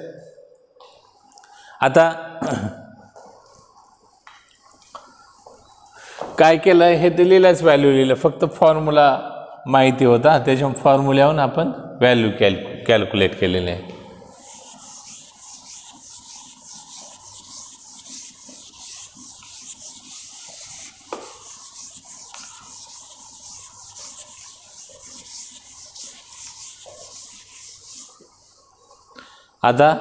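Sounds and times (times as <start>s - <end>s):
duster rubbing on chalkboard: 14.2s - 29.1s.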